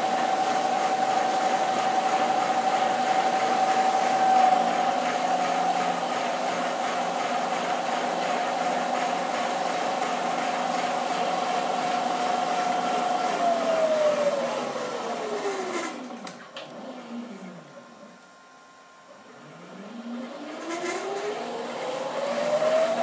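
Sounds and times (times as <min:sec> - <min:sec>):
milling machine spindle whine: 0:00.0 - 0:18.2, 0:19.3 - 0:23.0
milling machine spindle winding down: 0:11.0 - 0:17.6, 0:19.3 - 0:23.0.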